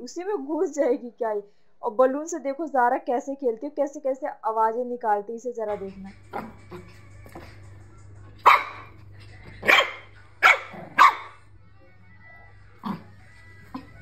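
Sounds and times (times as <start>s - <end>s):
puppy barking: 8.4s - 9.0s, 9.6s - 11.4s.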